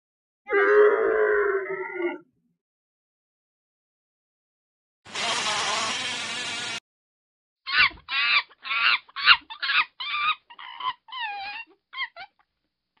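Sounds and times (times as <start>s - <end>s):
chicken squawking: 7.7s - 12.4s.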